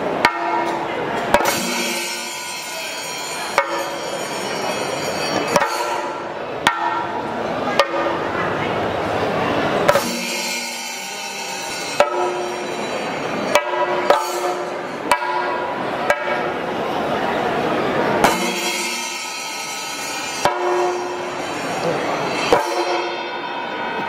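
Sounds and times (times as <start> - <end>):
dense din of drum ensemble: 0.0 - 24.0
sharp drum strokes: 0.2 - 4.4, 5.5 - 7.2, 9.9 - 16.6, 18.2 - 24.0.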